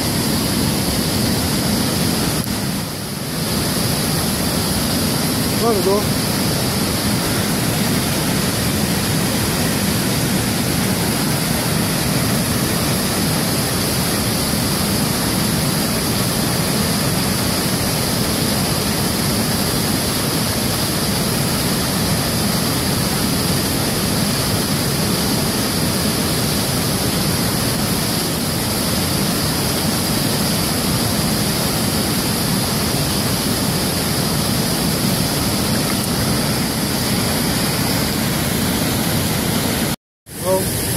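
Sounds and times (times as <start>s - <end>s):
fast-flowing river water: 0.0s - 40.9s.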